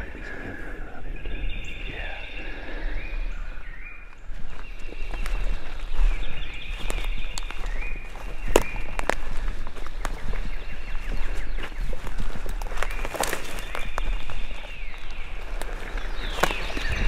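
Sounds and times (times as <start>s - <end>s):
songbirds whistling: 0.0s - 17.0s
footsteps through leaf litter: 4.3s - 17.0s
twig snaps: 8.5s - 9.2s.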